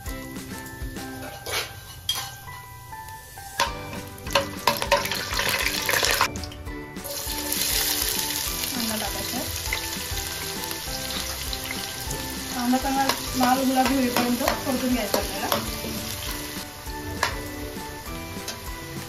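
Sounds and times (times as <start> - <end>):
onions frying: 0.0 - 19.0
spices sizzling in hot fat: 0.0 - 19.0
metal ladle clicking on pan: 3.6 - 6.2, 13.0 - 15.8.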